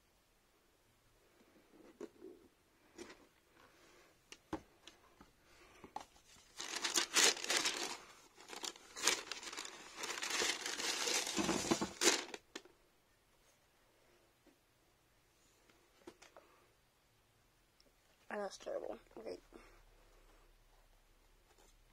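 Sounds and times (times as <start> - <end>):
tissue paper rustling: 6.1 - 12.4.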